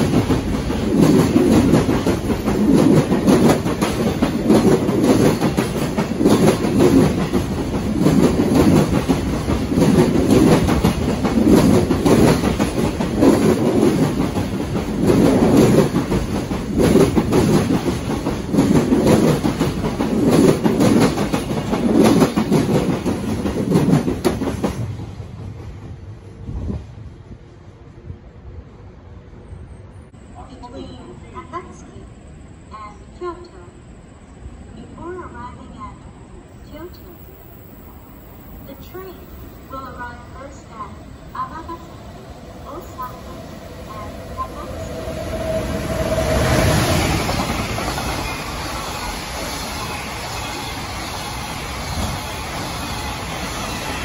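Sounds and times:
freight train wheels clattering: 0:00.0 - 0:26.0.

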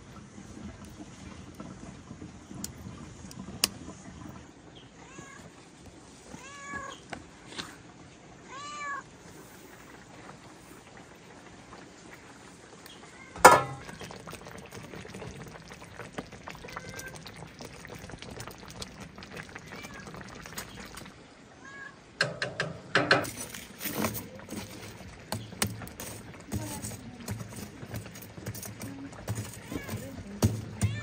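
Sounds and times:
cat meowing: 0:06.4 - 0:07.0, 0:08.5 - 0:09.0, 0:19.6 - 0:20.2, 0:21.6 - 0:22.0, 0:30.7 - 0:31.0.

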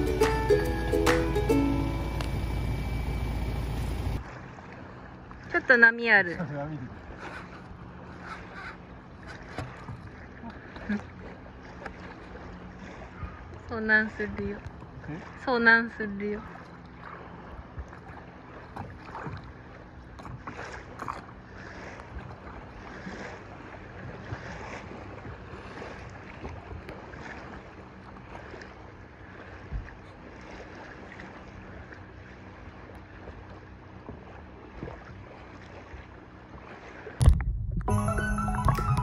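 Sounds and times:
water lapping: 0:00.0 - 0:37.2
paddle splashing in water: 0:04.2 - 0:05.6, 0:06.5 - 0:13.6, 0:16.4 - 0:37.3.

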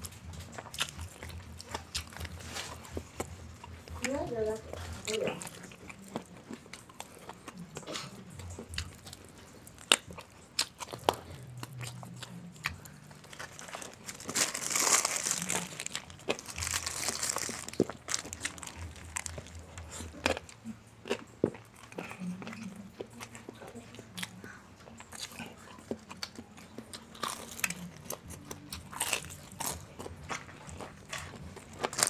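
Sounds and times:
crunching fried chicken: 0:00.0 - 0:32.0
paper wrapper crinkling: 0:13.2 - 0:20.3.

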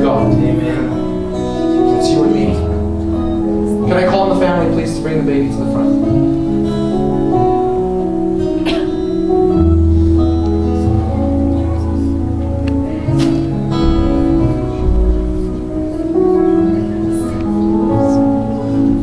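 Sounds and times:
instrumental music with chords: 0:00.0 - 0:19.0
low bass line: 0:09.3 - 0:19.0.

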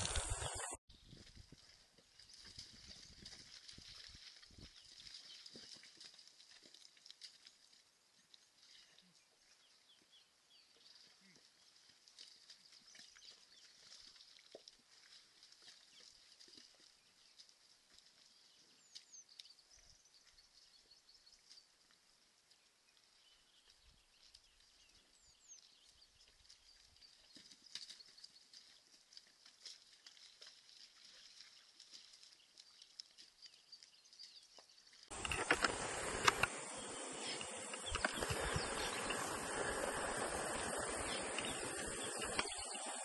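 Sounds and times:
faint hiss: 0:00.0 - 0:00.8, 0:35.1 - 0:43.0
faint clicks: 0:35.1 - 0:43.0
high insect drone: 0:35.1 - 0:43.0.

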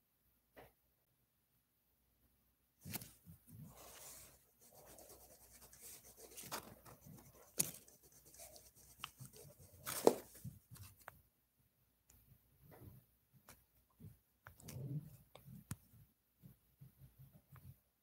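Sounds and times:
crayon scribbling on paper: 0:03.7 - 0:10.4.

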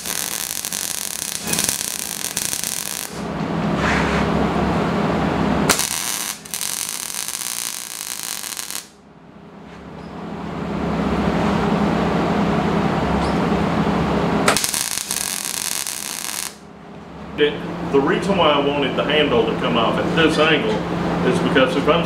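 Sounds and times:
welder arc crackling hiss: 0:00.0 - 0:03.2, 0:05.7 - 0:09.0, 0:14.5 - 0:16.6.

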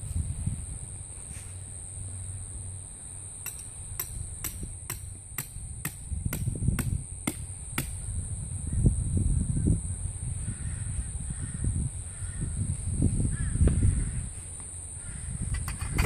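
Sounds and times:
hammer striking tent peg: 0:03.4 - 0:08.0.

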